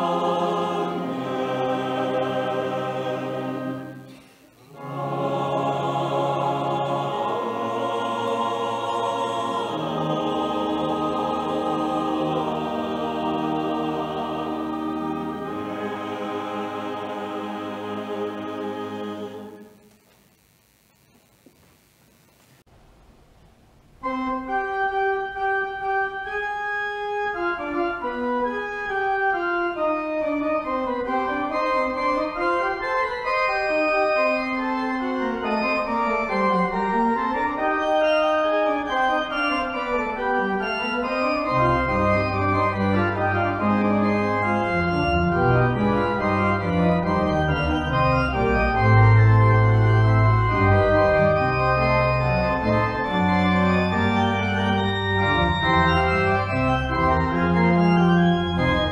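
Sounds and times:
organ playing: 0:00.0 - 0:19.8, 0:24.0 - 0:58.9
deep organ bass notes: 0:24.0 - 0:58.9.

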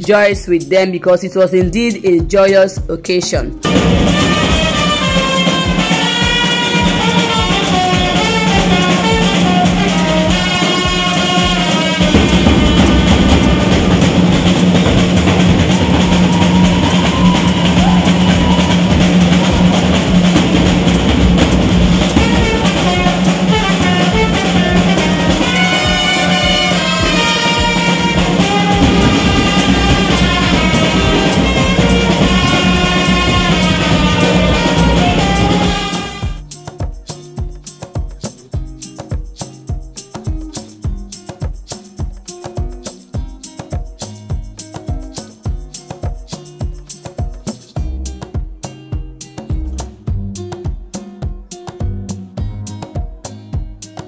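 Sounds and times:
brass band playing: 0:03.6 - 0:36.4
marching drums: 0:03.6 - 0:36.4.

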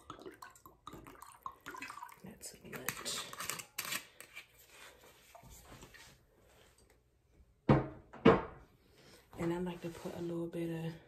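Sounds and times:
liquid pouring into a glass: 0:00.0 - 0:03.1.

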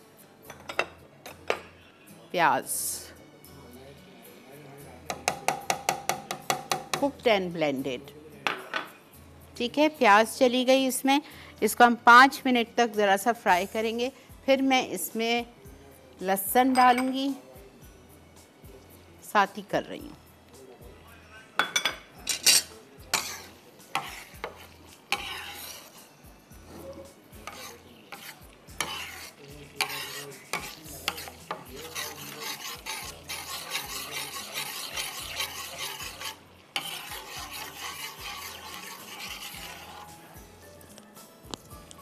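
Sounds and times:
utensil knocking and scraping pan: 0:05.1 - 0:07.1, 0:21.6 - 0:26.0, 0:26.7 - 0:40.2
onion and garlic sizzling in oil: 0:22.5 - 0:40.3.

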